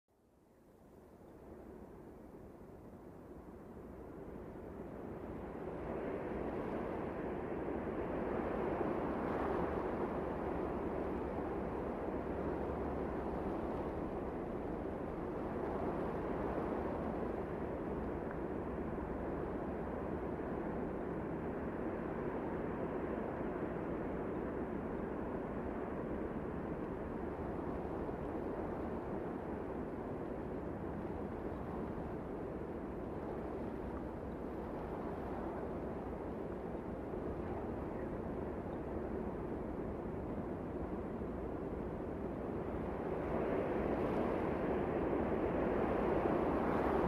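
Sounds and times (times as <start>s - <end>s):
steady low wind: 0.1s - 47.0s
wind blowing: 25.3s - 47.0s.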